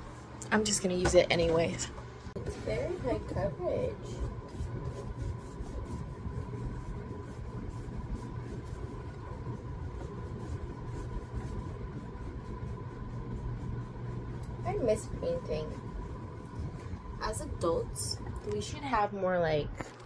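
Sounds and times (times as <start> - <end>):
steady low hum: 0.0 - 20.0
paintbrush brushing on cardboard: 2.5 - 17.0.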